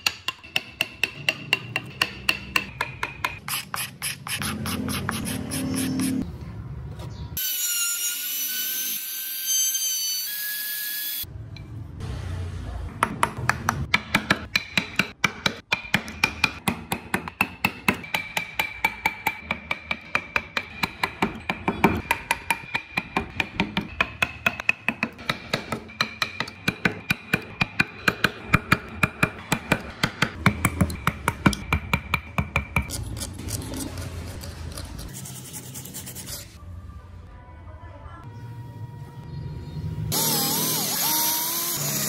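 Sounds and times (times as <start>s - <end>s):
mallet tapping chisel into wood: 0.0s - 3.4s, 13.0s - 32.9s.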